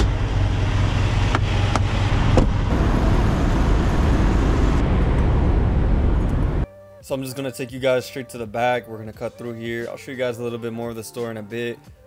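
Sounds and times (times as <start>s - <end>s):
heavy truck engine idling: 0.0s - 6.6s.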